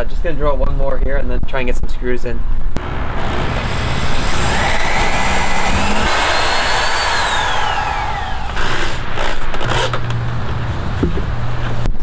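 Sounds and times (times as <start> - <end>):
cordless drill motor whine: 3.1 - 10.0.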